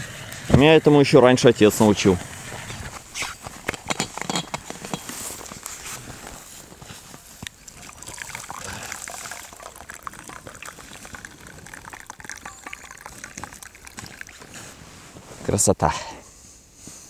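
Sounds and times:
tea pouring into a cup: 0:07.4 - 0:14.8.

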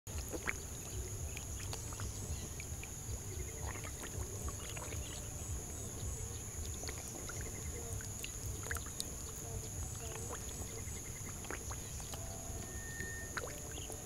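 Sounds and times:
fish splashing in water: 0:00.1 - 0:14.0
steady low rumble: 0:00.1 - 0:14.0
high-pitched whine: 0:12.0 - 0:14.0.

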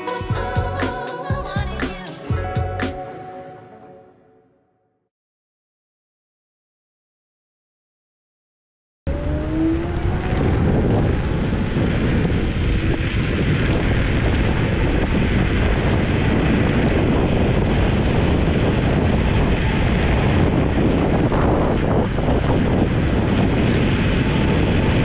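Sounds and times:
electric motor whine: 0:09.1 - 0:25.0
road noise: 0:09.1 - 0:25.0
wind rushing over microphone: 0:09.1 - 0:25.0.

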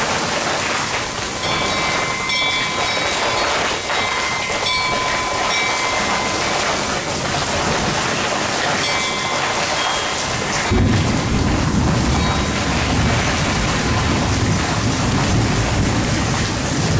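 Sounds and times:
steady rain hiss: 0:00.0 - 0:16.9
thin high tones: 0:01.4 - 0:07.7.

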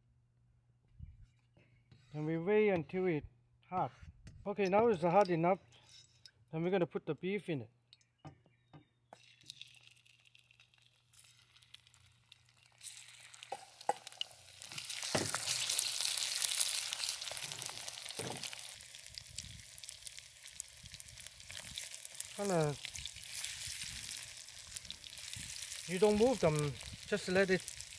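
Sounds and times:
beef sizzling in a wok: 0:09.4 - 0:27.9.

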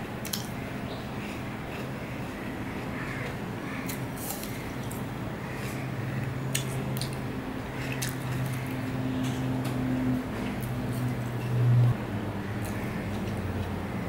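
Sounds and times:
steady low hum: 0:00.0 - 0:14.0
wet chewing of fruit: 0:07.8 - 0:08.7.

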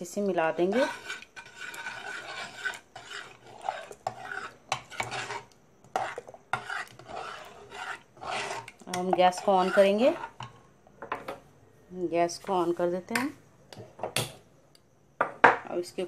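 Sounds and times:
spoon stirring and scraping pot: 0:00.0 - 0:10.8.

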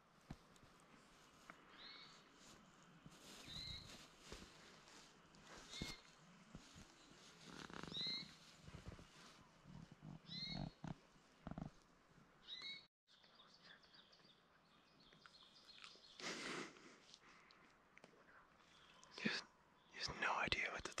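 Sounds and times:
soft rustling: 0:00.1 - 0:11.9
small animal chirping: 0:07.6 - 0:08.4, 0:10.2 - 0:10.9.

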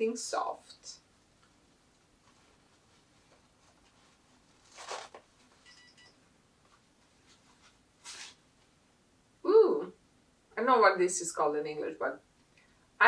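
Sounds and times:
gift wrapping rustling: 0:02.2 - 0:05.6.

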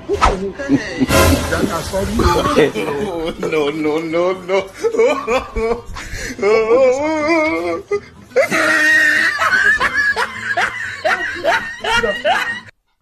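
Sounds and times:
person laughing loudly: 0:00.6 - 0:03.6, 0:08.4 - 0:12.7.

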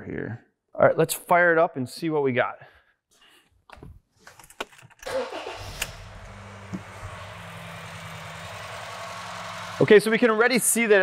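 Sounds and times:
engine cranking: 0:05.0 - 0:10.0
car engine idling: 0:05.1 - 0:11.0.

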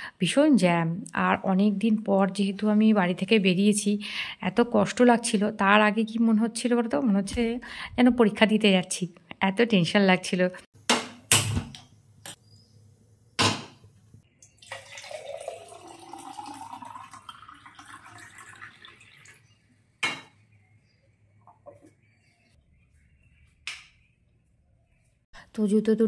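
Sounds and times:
water pouring into glass jar: 0:14.4 - 0:19.6.

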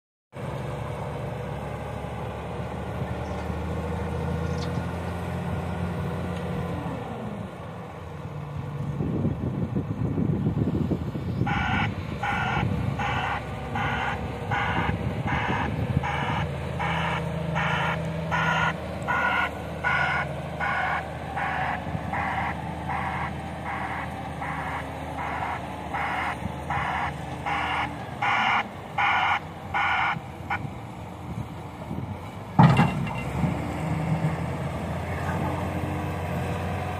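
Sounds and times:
loader diesel engine running: 0:00.4 - 0:36.9
reversing alarm beeps: 0:11.5 - 0:30.6.

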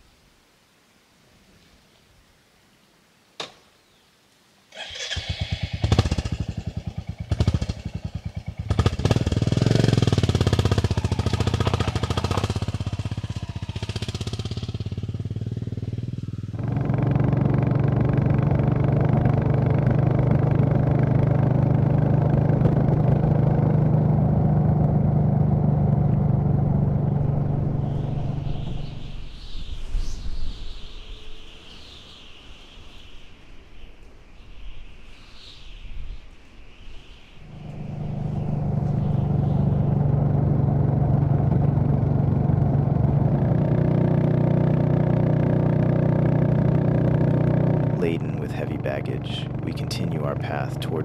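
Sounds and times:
motorcycle engine starting and revving: 0:04.7 - 0:29.2, 0:37.4 - 0:51.0.

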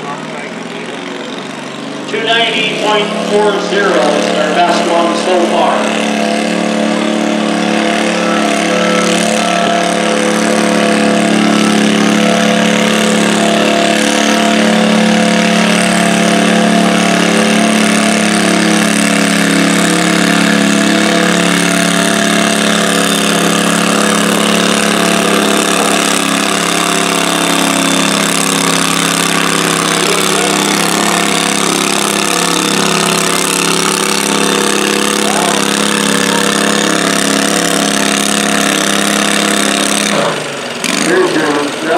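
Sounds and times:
garden tractor engine running hard: 0:00.0 - 0:41.9.

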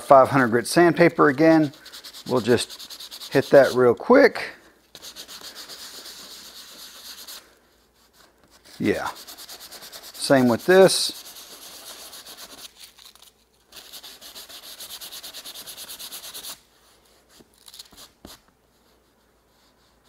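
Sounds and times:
sandpaper rasping on leather: 0:00.3 - 0:03.9, 0:05.0 - 0:07.4, 0:08.0 - 0:12.8, 0:13.7 - 0:16.6.

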